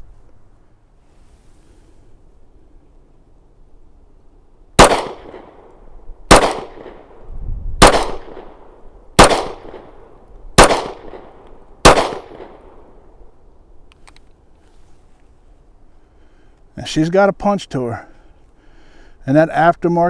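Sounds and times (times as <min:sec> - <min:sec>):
pistol shots: 0:04.8 - 0:05.7, 0:06.3 - 0:07.2, 0:07.8 - 0:12.8.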